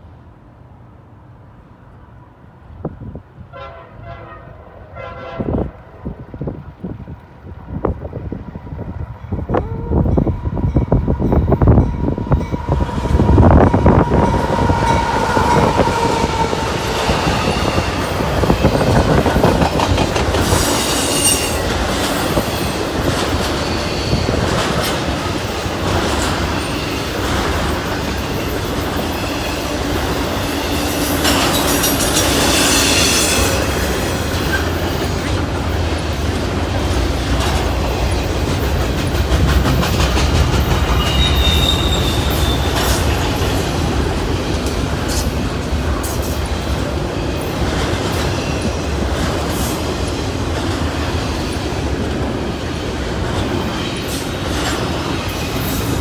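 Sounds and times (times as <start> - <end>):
diesel locomotives passing: 0.0 - 56.0
train wheels rumbling on rails: 4.9 - 56.0
high-pitched wheel squeals: 20.6 - 21.7, 40.9 - 42.8.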